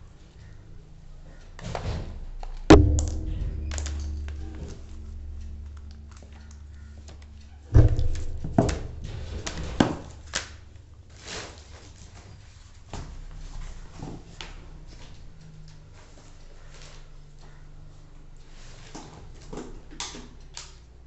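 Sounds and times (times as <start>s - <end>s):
sharp knock: 2.7s - 6.8s, 7.8s - 10.7s
handling rumble: 2.7s - 14.7s.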